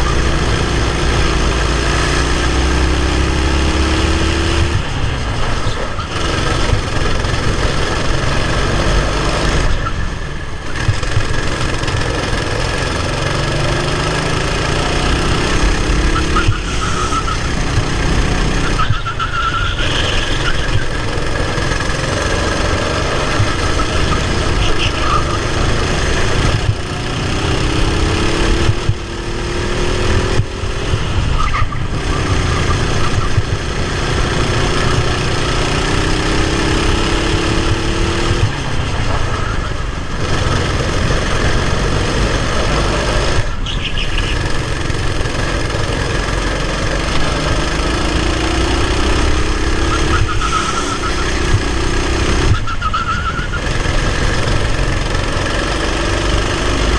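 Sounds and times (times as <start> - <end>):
racing kart engine revving: 0.0 - 56.9.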